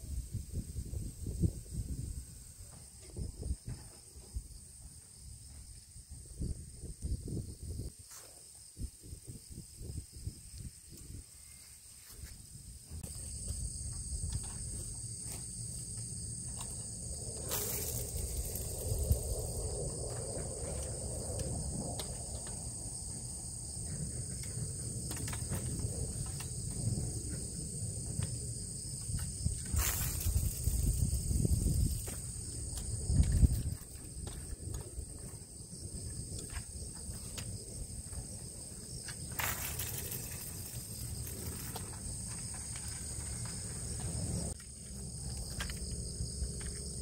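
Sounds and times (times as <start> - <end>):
insects shrilling: 14.2 - 23.5, 28.4 - 34.0, 38.7 - 44.6
rustling and knocks from movement: 23.8 - 38.4, 39.0 - 45.8.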